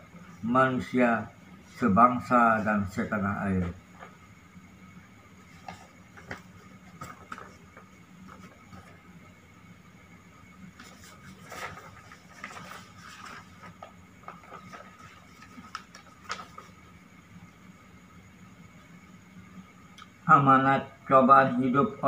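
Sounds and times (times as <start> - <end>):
faint steady hum: 0.0 - 22.0
paper rustling and crackling: 5.5 - 9.0, 10.7 - 16.8.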